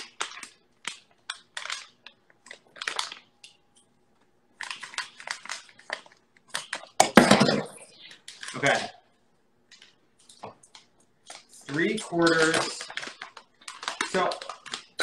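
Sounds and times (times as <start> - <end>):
paper bag crinkling: 0.0 - 3.3, 11.3 - 15.0.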